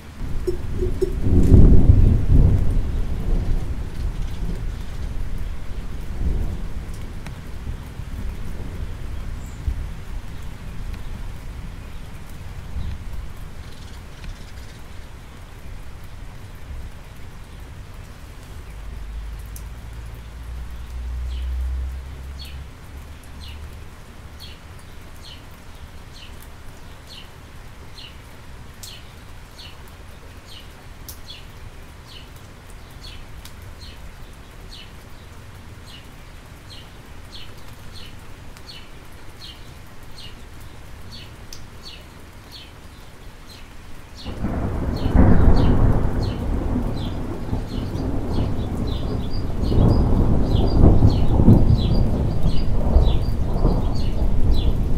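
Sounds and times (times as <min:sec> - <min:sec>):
rain on wet pavement: 0:00.0 - 0:54.9
thunder rumbling: 0:00.2 - 0:11.7, 0:44.2 - 0:54.9
bird chirping: 0:00.4 - 0:01.3.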